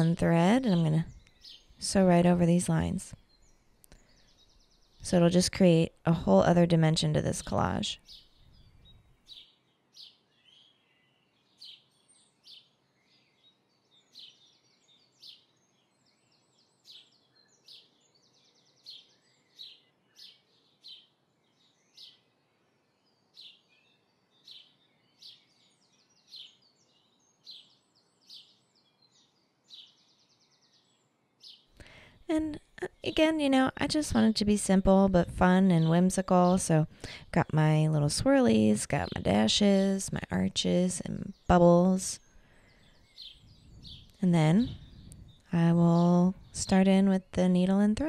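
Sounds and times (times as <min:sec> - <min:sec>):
faint bird chirps: 0:07.2 - 0:33.9, 0:40.1 - 0:48.0.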